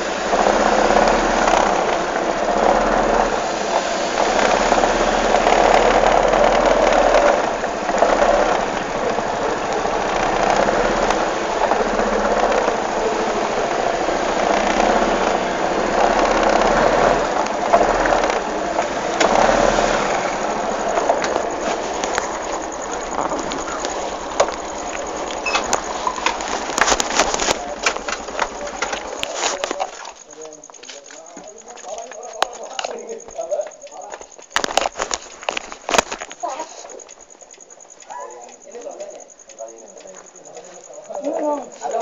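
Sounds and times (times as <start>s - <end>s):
rushing noise: 0.0s - 30.8s
vehicle engine running: 0.0s - 42.0s.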